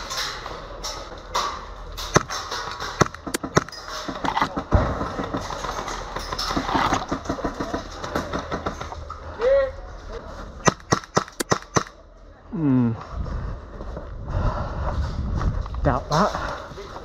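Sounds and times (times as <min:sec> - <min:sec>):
airsoft gun rattling bursts: 0:10.6 - 0:12.0.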